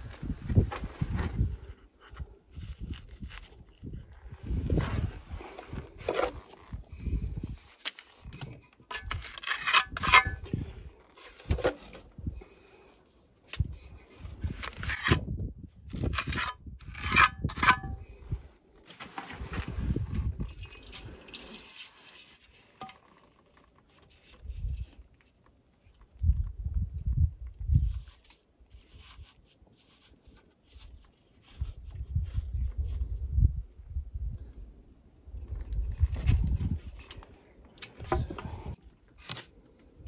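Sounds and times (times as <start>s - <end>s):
trowel scraping and clinking: 8.4s - 10.6s, 16.0s - 18.1s, 20.4s - 23.4s.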